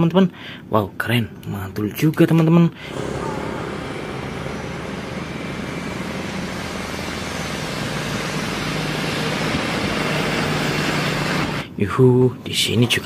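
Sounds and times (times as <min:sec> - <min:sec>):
diesel engine hum: 0:02.8 - 0:11.7
rumbling wheels on rails: 0:02.9 - 0:11.6.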